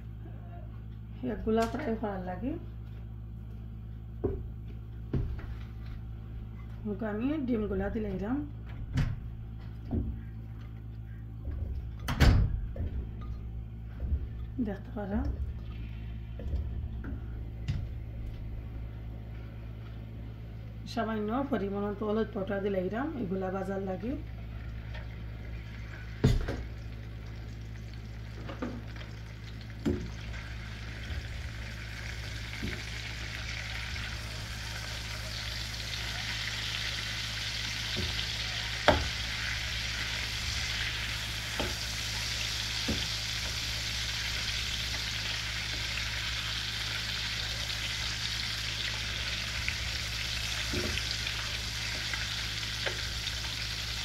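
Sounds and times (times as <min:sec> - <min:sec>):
eggs sizzling in hot oil: 0:24.2 - 0:54.0.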